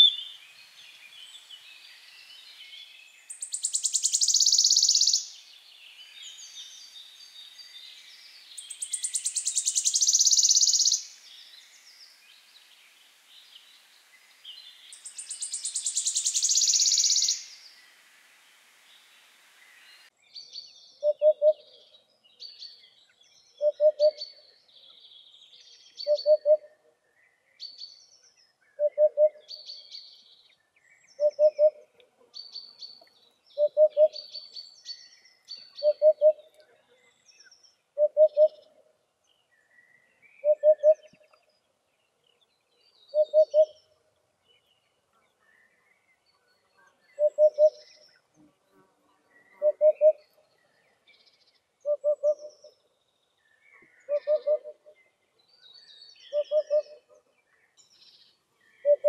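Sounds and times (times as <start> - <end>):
warbler trilling song: 0.0 - 17.9, 32.4 - 48.4
small birds chirping faintly: 0.0 - 59.0.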